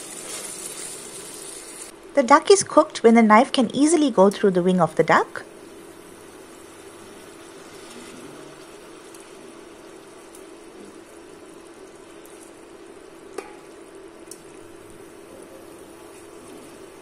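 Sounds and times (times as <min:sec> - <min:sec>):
curry sizzling in a pot: 0:00.0 - 0:02.0, 0:05.5 - 0:17.0
steady hum: 0:01.0 - 0:17.0.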